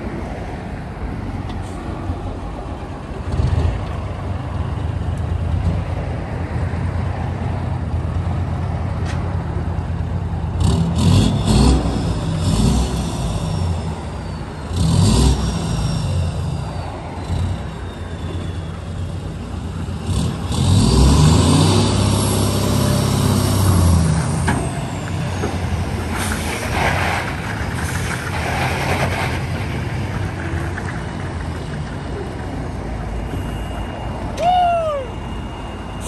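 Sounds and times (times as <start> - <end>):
diesel engine revving under load: 10.0 - 31.4.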